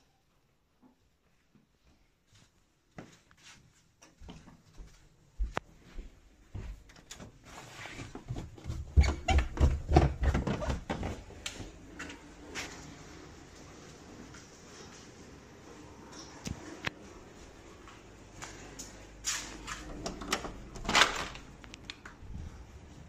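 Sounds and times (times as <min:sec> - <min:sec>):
footsteps on carpeted stairs: 0:01.5 - 0:12.8.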